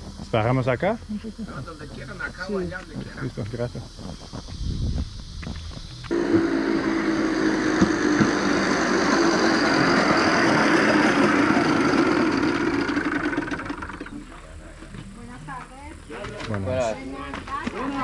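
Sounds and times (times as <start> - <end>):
motorcycle engine running: 5.0 - 14.4.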